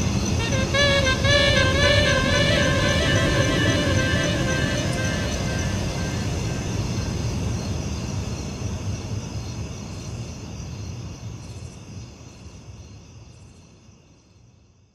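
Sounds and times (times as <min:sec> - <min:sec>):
low rumbling drone: 0:00.0 - 0:07.8
steady high tones: 0:00.4 - 0:07.6.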